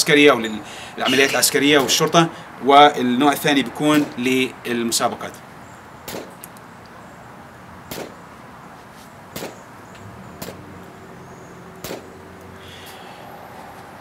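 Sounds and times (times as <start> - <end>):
pistol shots: 7.9 - 8.2, 11.8 - 12.1.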